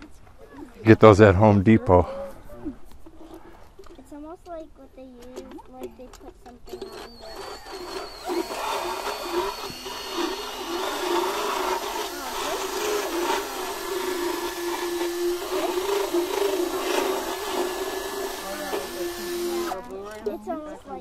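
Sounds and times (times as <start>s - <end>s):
electric motor whine: 6.7s - 19.9s.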